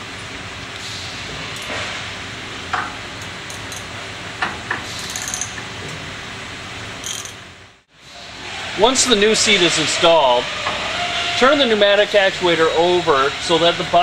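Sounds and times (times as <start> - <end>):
socket wrench clicking: 5.0 - 5.6, 7.0 - 7.4.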